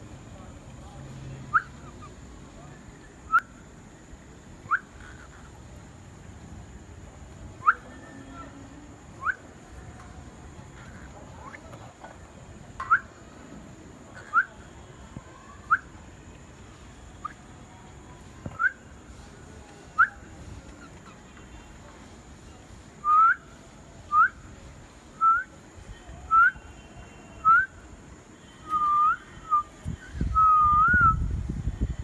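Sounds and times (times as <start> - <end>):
cockatiel whistled chirps: 1.5 - 2.0, 4.7 - 4.9.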